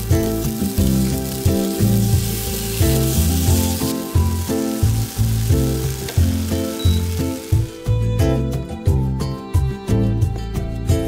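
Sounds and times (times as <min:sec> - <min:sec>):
bacon and onion sizzling: 0:00.0 - 0:08.0
background music with steady beat: 0:00.0 - 0:11.0.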